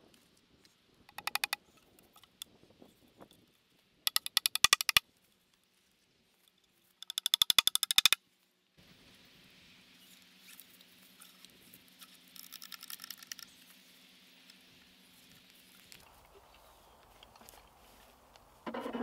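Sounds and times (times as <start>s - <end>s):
strap rustling around tree: 0.0s - 8.7s, 9.9s - 19.0s
rapid loud clicks: 1.1s - 1.6s, 4.1s - 5.0s, 7.0s - 8.2s.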